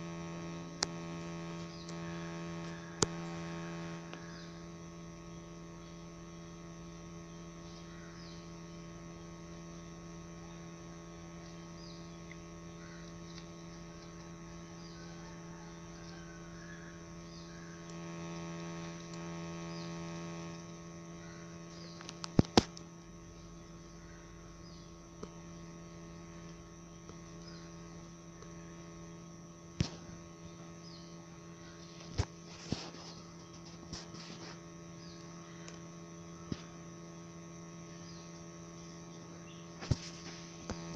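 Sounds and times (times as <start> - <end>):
electrical hum: 0.0 - 40.9
sharp clicks: 2.6 - 3.4, 21.7 - 22.9.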